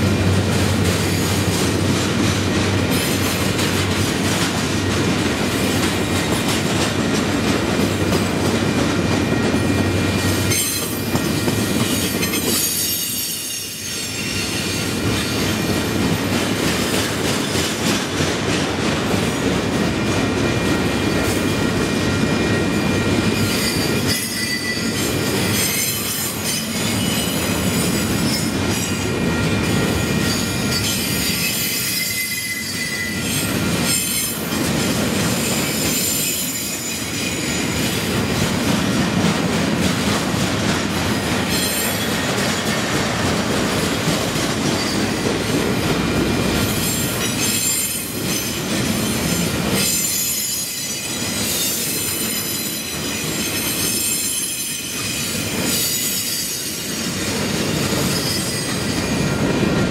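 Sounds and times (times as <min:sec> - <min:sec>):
train wheels rolling on rails: 0:00.0 - 0:59.9
high wheel squeal: 0:11.9 - 0:15.6, 0:23.3 - 0:34.4, 0:35.4 - 0:38.0, 0:58.0 - 0:59.4.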